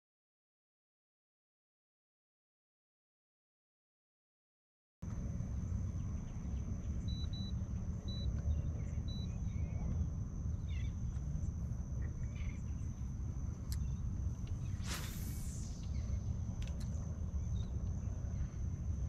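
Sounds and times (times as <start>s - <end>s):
low steady rumble: 5.0s - 19.0s
high-pitched insect whine: 5.1s - 19.0s.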